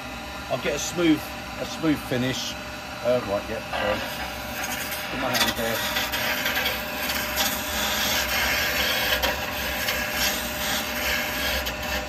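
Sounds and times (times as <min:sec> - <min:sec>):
lathe humming: 0:00.0 - 0:12.0
chisel rasping on spinning wood: 0:03.8 - 0:12.0.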